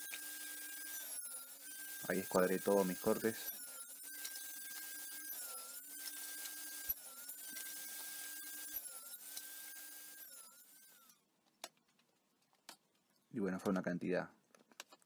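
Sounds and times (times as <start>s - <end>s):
table saw cutting wood: 0.0s - 11.2s.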